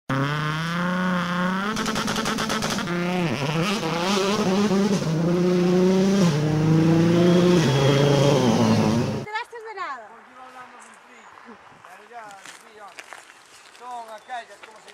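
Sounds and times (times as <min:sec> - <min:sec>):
rally car engine at high revs: 0:00.1 - 0:09.3
engine crackles: 0:00.2 - 0:09.3.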